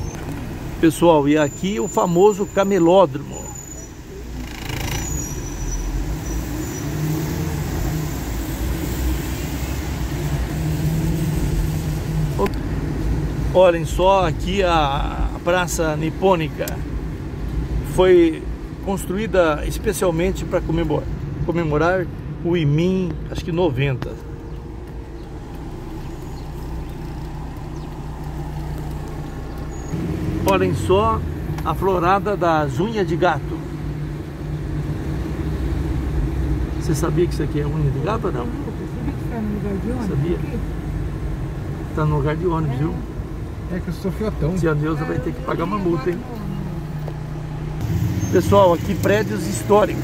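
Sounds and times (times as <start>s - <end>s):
tyre noise on wet road: 0.0s - 18.0s, 23.1s - 33.1s, 33.7s - 50.0s
car engine hum: 0.0s - 50.0s
tyres hissing on wet road: 1.5s - 12.5s, 47.8s - 50.0s.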